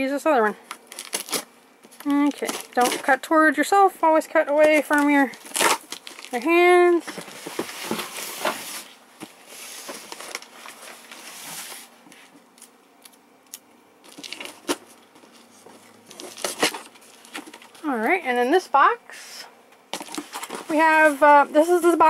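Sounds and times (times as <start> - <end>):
cardboard scraping and rustling: 4.5 - 12.3, 14.1 - 17.8, 19.9 - 21.5
box handling: 6.9 - 11.8, 14.1 - 17.8, 19.9 - 21.4.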